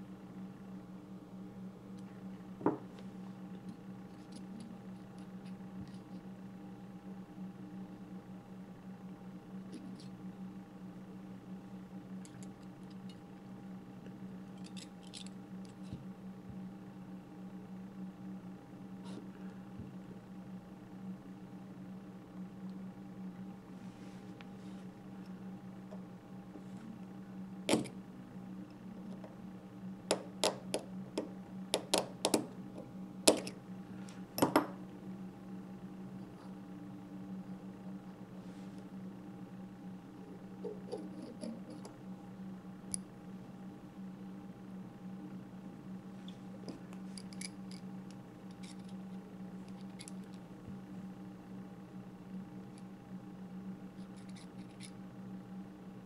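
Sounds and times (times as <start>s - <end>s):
steady low hum: 0.0s - 56.0s
small metallic clicks and scrapes: 14.5s - 16.0s, 40.6s - 42.0s, 46.6s - 50.4s, 54.0s - 55.0s.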